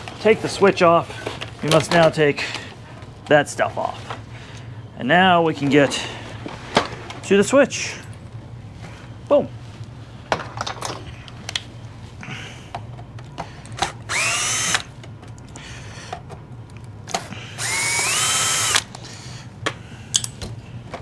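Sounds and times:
cordless drill whining: 14.0s - 14.9s, 17.6s - 18.9s.

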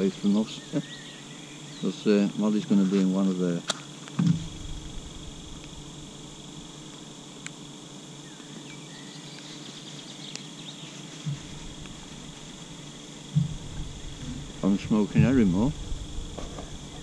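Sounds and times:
steady high-pitched hiss: 0.0s - 17.0s
soft low thump: 13.3s - 17.0s.

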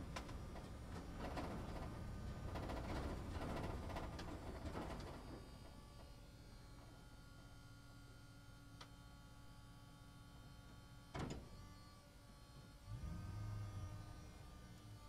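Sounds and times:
bus cabin rumble with rattles: 0.0s - 6.1s
steady electric hum: 0.0s - 15.0s.

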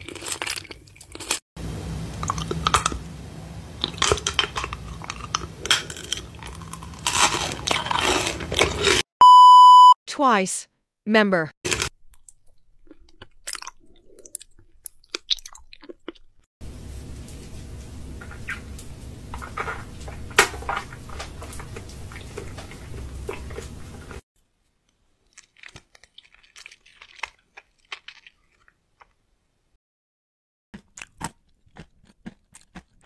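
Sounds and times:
people chewing and crunching: 0.0s - 1.4s, 2.1s - 3.1s, 3.8s - 9.1s, 11.7s - 16.5s, 18.2s - 24.2s, 24.8s - 29.3s, 30.7s - 33.0s
steady low hum: 1.6s - 7.1s, 16.6s - 24.2s.

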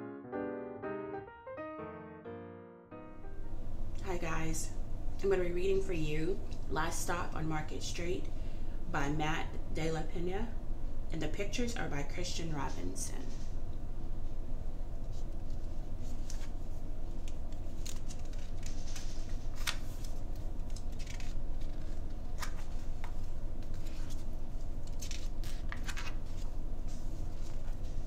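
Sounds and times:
steady low hum: 3.0s - 28.0s
book pages turning: 15.0s - 28.0s.

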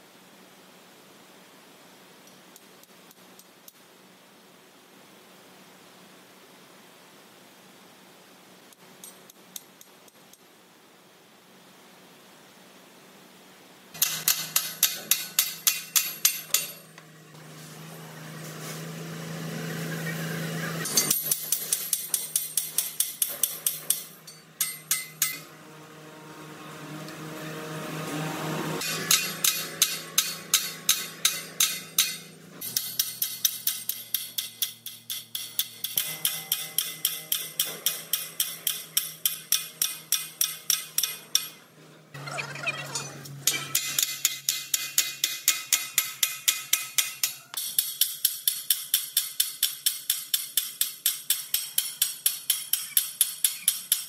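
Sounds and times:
steady low hum: 0.0s - 44.7s
hammer striking steel chisel: 14.0s - 17.0s, 20.9s - 25.5s, 28.8s - 41.6s, 43.4s - 54.0s.

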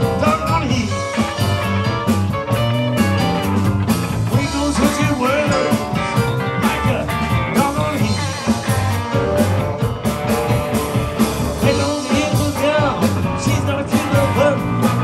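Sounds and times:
man singing into microphone: 0.0s - 1.2s, 4.3s - 5.9s, 6.6s - 8.7s, 11.6s - 15.0s
drum kit beat: 0.0s - 15.0s
electric guitars: 0.0s - 15.0s.

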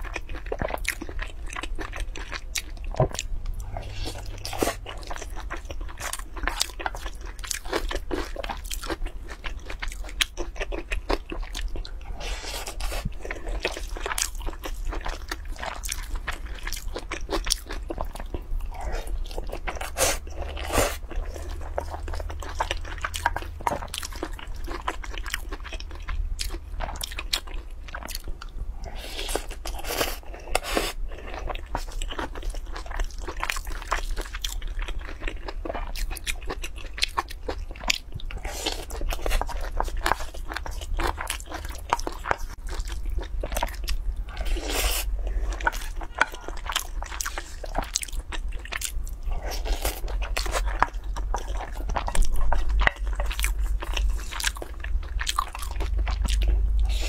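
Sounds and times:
wet chewing and crunching: 0.0s - 57.0s
low hum: 2.6s - 6.3s.

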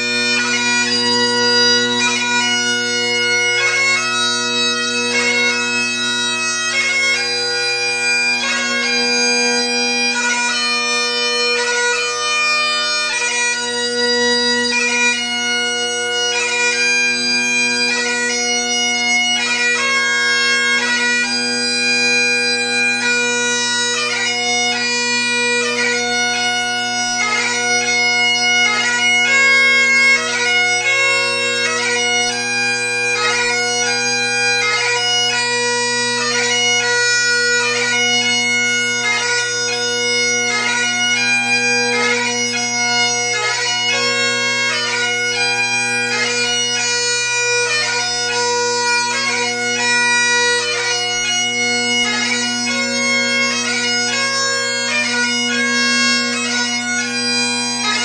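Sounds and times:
bagpipe playing: 0.0s - 58.0s.

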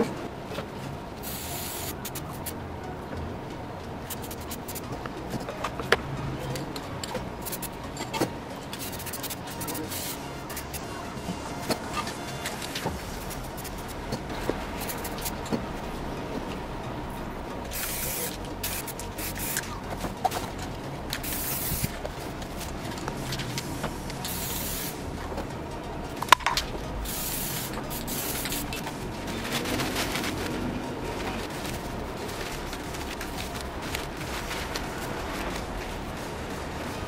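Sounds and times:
spray paint can hissing: 1.2s - 2.6s, 4.0s - 4.9s, 7.4s - 7.8s, 8.6s - 10.9s, 11.6s - 14.2s, 14.8s - 15.4s, 17.7s - 19.9s, 21.1s - 22.0s, 23.0s - 25.1s, 26.2s - 29.0s.

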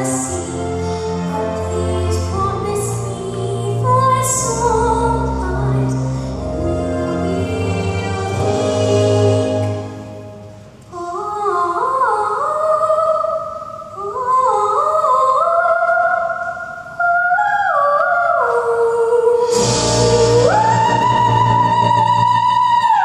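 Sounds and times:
girl singing soprano: 0.0s - 9.8s, 10.9s - 23.0s
musical accompaniment: 0.0s - 10.9s, 19.4s - 23.0s.

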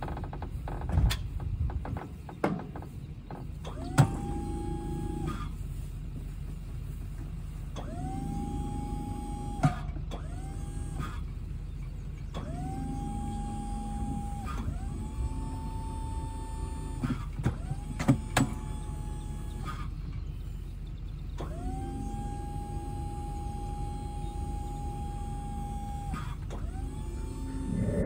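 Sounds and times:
electric motor whining: 21.7s - 28.0s
steady low rumble: 27.2s - 28.0s.

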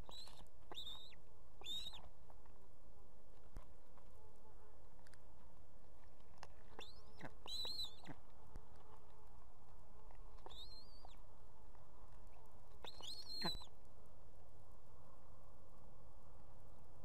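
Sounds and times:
osprey whistled calls: 0.0s - 2.0s, 6.8s - 8.1s, 10.5s - 11.2s, 12.8s - 13.7s
low background hiss: 0.0s - 17.0s.

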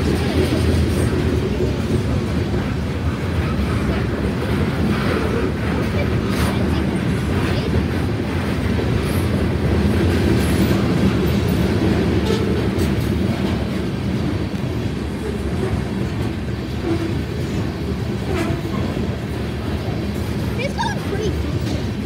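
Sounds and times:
freight train wheels rumbling: 0.0s - 22.0s.

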